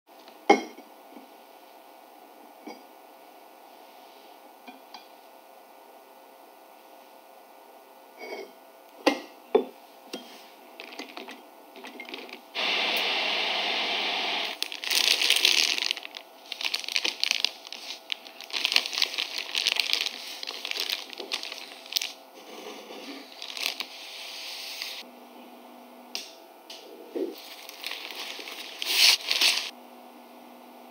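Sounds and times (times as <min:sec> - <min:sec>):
plastic bag crinkling: 0:10.8 - 0:12.6, 0:14.5 - 0:24.0, 0:27.4 - 0:29.7.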